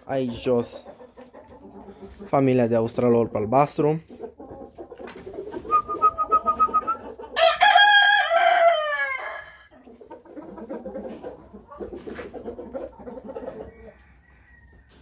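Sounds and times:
hens clucking: 0.0 - 15.0
rooster crowing: 7.4 - 9.7.

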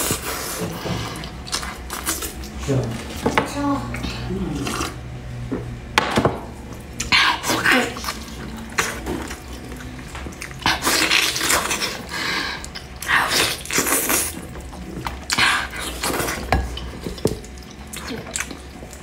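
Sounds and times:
wet chewing and lip-smacking: 1.2 - 2.6, 7.9 - 19.0.

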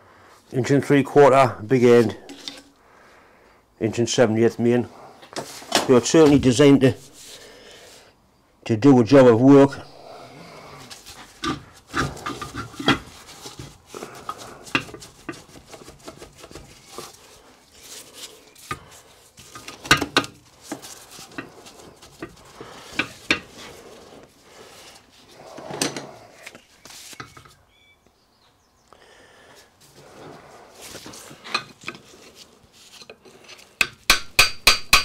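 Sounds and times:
metal scraping rub: 10.4 - 27.5.

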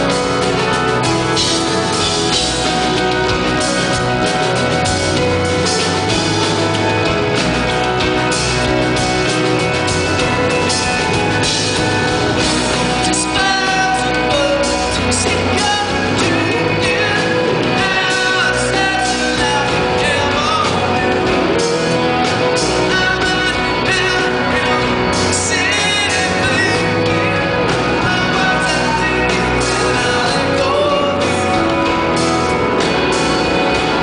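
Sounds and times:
bass: 0.0 - 34.0
drums: 0.0 - 34.0
man singing: 12.7 - 32.2.

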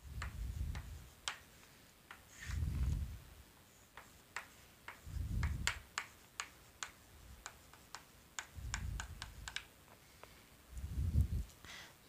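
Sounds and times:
chalk tapping on blackboard: 0.0 - 2.6, 3.6 - 9.7.

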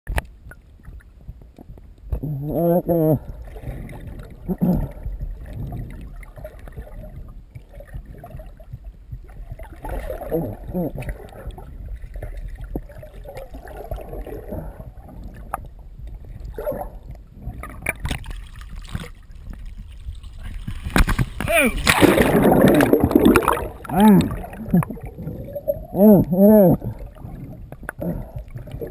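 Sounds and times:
underwater low rumble: 0.1 - 28.9
water gurgling and bubbling: 0.4 - 28.9
water splashes and drips: 3.3 - 25.7.

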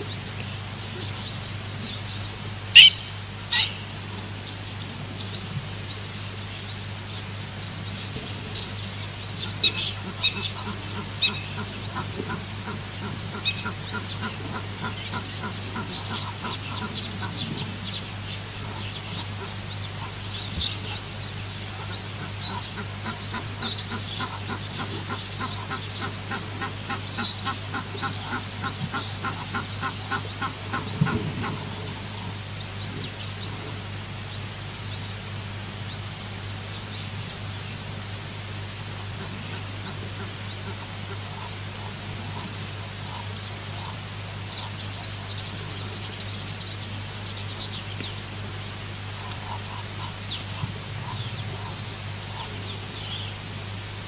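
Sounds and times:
steady low hum: 0.0 - 54.0
louder bird calls: 1.0 - 5.4
higher bird chirps: 1.2 - 5.4
short repeated bird calls: 2.7 - 5.4.

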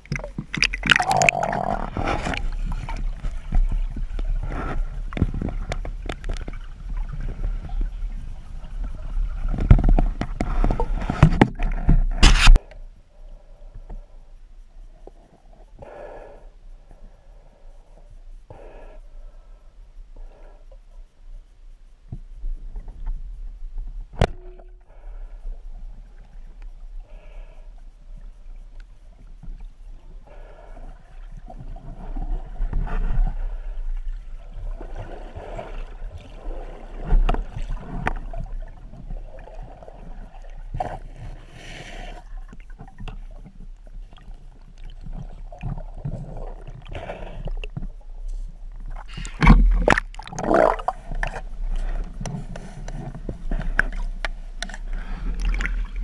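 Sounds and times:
water rushing and gurgling underwater: 0.0 - 14.1, 22.4 - 56.0
sharp click: 11.4 - 12.8.

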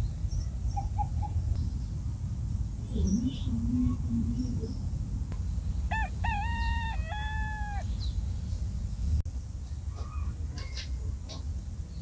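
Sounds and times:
rooster crowing: 5.9 - 7.9.

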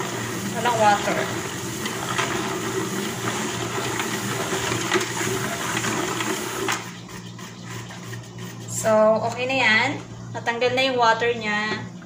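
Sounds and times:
salad spinner whirring: 0.0 - 9.6.

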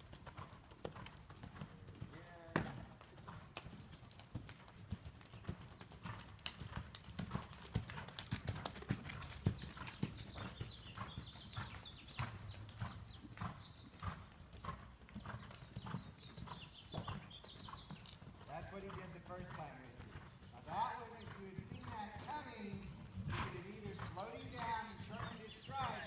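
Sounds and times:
hoofbeats on sand: 7.3 - 12.0.

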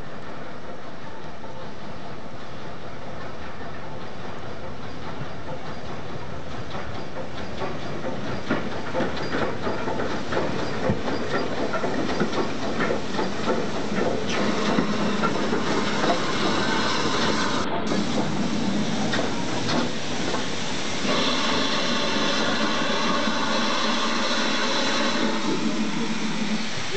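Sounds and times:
steam hissing: 0.0 - 26.9
steam locomotive approaching: 0.0 - 26.9
wheels clanking and knocking: 4.6 - 20.5.

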